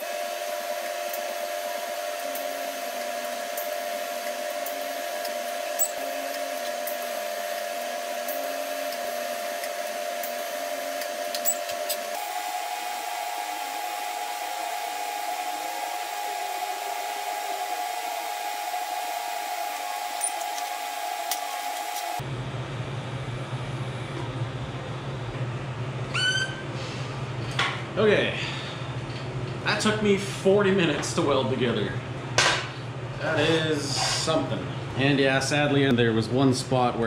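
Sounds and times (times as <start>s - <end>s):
welding arc buzzing: 0.0s - 22.2s.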